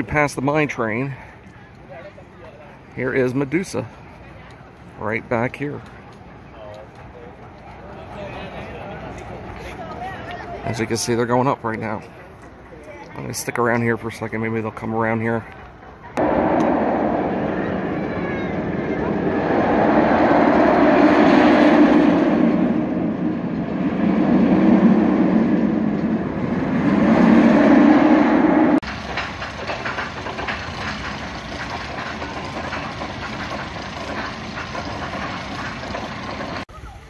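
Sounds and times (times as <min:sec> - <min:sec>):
roller coaster rushing rumble: 0:00.0 - 0:37.0
coaster train rattling and clicking: 0:17.4 - 0:37.0.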